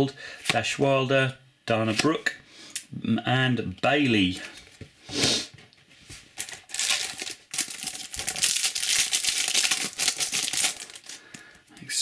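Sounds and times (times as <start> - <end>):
foil wrapper crinkling: 6.4 - 11.5.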